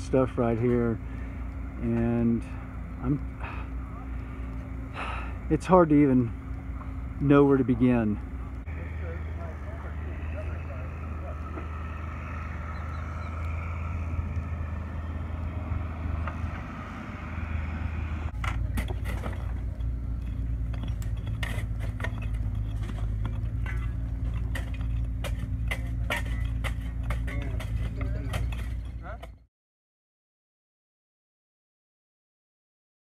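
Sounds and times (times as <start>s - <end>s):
low engine hum: 0.0s - 29.5s
hand tools striking rock debris: 18.4s - 29.4s.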